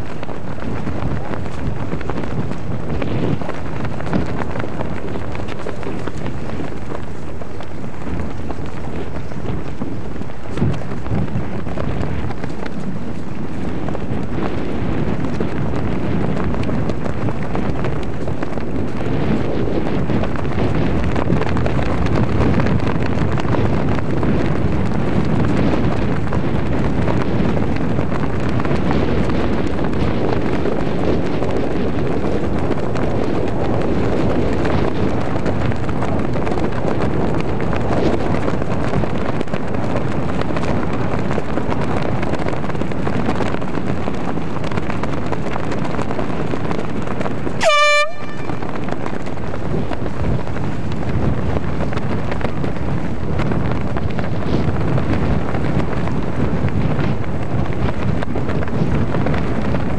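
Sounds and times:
wind buffeting microphone: 0.0s - 59.9s
high horn blast: 47.6s - 48.9s.

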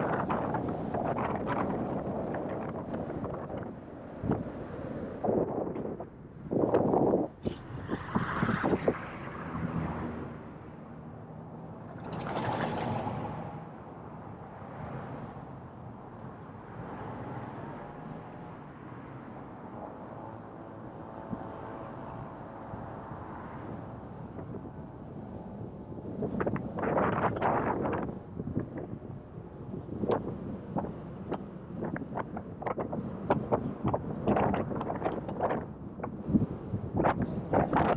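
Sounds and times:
tyre and wind noise: 0.0s - 9.4s, 20.8s - 37.9s.

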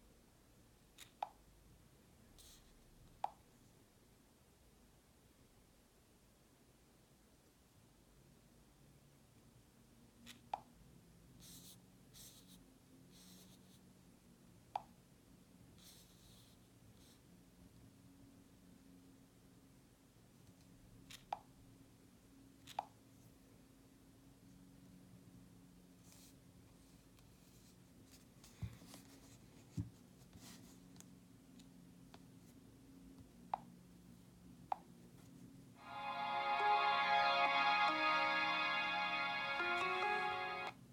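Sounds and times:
soft brushing sounds: 26.0s - 30.9s.

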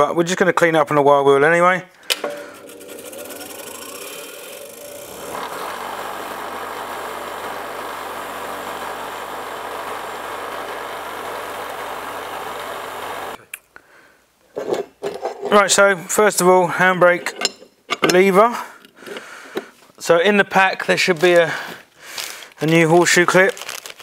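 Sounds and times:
bench grinder motor hum: 2.2s - 13.4s
wire wheel brushing metal: 2.2s - 13.4s.

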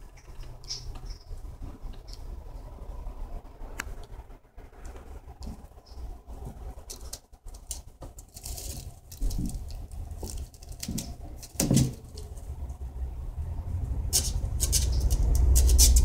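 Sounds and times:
kitten scratching plastic liner: 5.4s - 12.4s, 14.1s - 16.0s.

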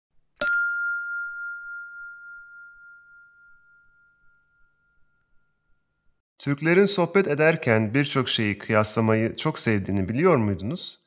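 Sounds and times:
struck chime ringing: 0.4s - 5.3s.

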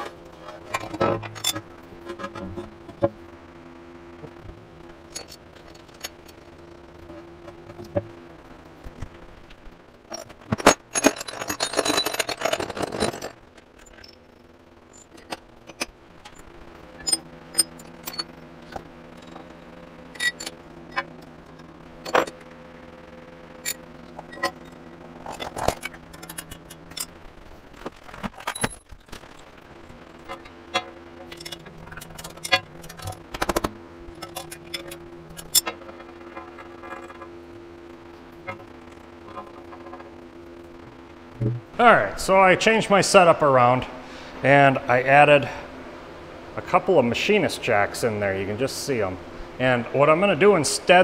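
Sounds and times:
rattling metal scrape: 0.0s - 3.1s, 10.1s - 14.2s, 17.0s - 21.2s, 23.6s - 27.2s, 30.2s - 37.3s
faint steady hum: 0.0s - 51.0s
metal tools clanking on table: 0.4s - 3.1s, 5.1s - 6.4s, 10.1s - 14.2s, 17.0s - 18.3s, 19.2s - 21.1s, 22.0s - 22.4s, 23.6s - 27.1s, 30.2s - 37.3s.

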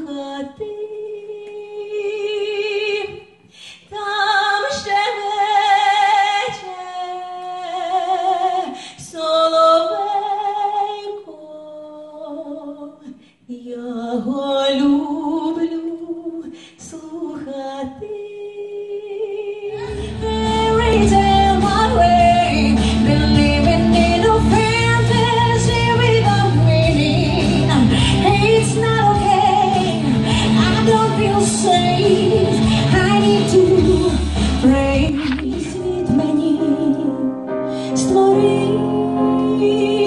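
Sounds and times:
woman singing with vibrato: 0.0s - 40.0s
band with heavy bass: 19.8s - 36.2s.

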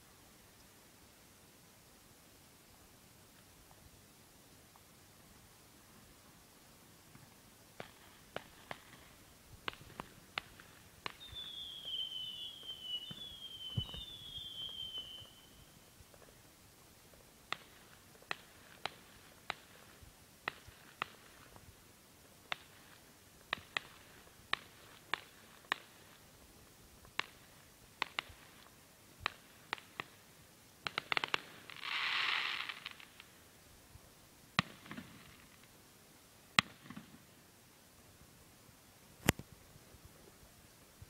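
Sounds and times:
fireworks crackling: 7.1s - 33.7s, 34.5s - 35.9s, 36.5s - 37.4s
fireworks bangs: 7.8s - 15.5s.

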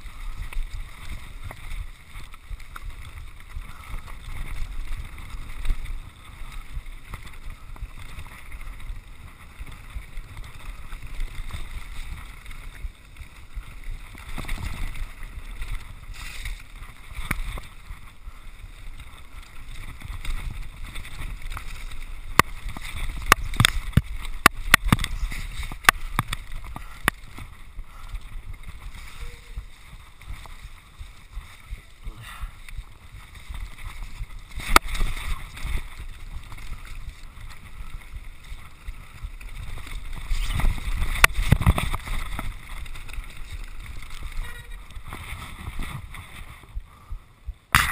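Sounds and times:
tyres rolling over stones: 0.0s - 46.8s
bike rattling: 0.0s - 47.9s
wind on microphone: 0.0s - 47.9s.

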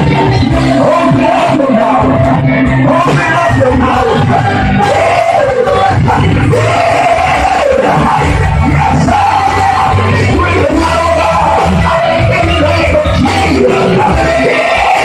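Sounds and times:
amplified worship music: 0.0s - 15.0s
congregation singing and calling out: 0.0s - 15.0s
steady low bass: 0.0s - 15.0s.

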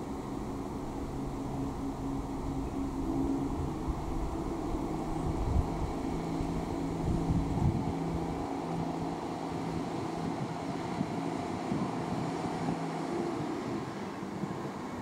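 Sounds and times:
low rumble: 0.0s - 9.1s
diesel train engine hum: 0.0s - 15.0s.

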